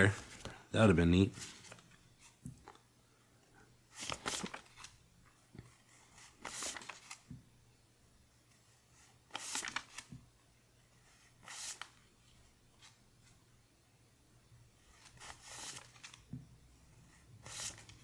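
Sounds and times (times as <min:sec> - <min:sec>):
paper bills rustling: 0:01.2 - 0:02.8, 0:03.9 - 0:05.0, 0:05.8 - 0:07.3, 0:09.3 - 0:10.1, 0:11.4 - 0:13.0, 0:14.9 - 0:16.3, 0:17.4 - 0:18.0.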